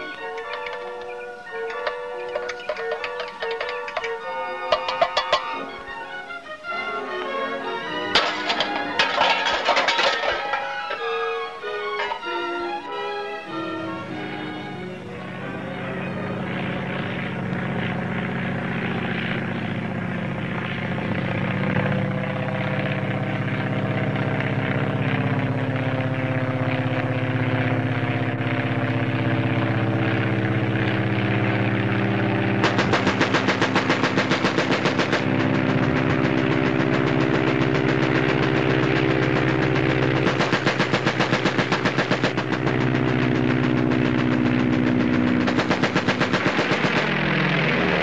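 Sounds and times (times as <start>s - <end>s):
machine gun firing: 0.0s - 5.6s, 8.1s - 12.3s, 32.5s - 48.0s
aeroplane engine droning: 0.0s - 48.0s.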